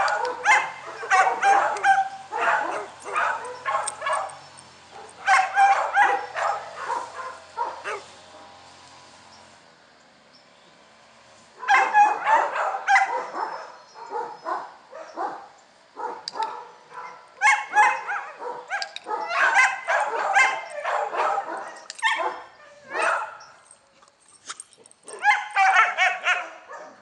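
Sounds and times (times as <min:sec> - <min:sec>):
dog barking and whining: 0:00.0 - 0:08.1, 0:11.6 - 0:23.8, 0:24.7 - 0:27.0.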